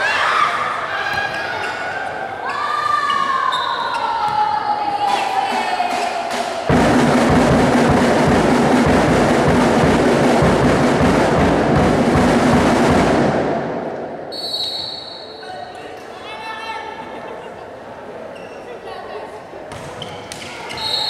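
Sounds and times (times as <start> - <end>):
fast drumming and percussion: 5.4 - 13.6.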